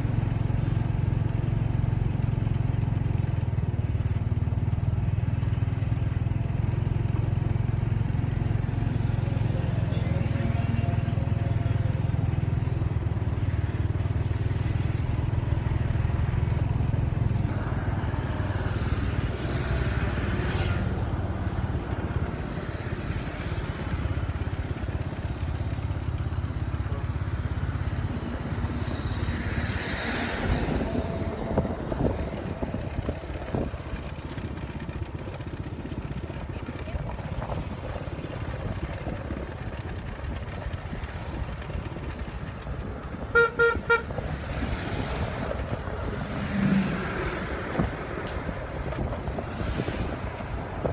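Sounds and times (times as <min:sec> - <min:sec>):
road and wind noise: 0:00.0 - 0:50.9
scooter engine running: 0:00.0 - 0:50.9
vehicles passing: 0:00.0 - 0:50.9.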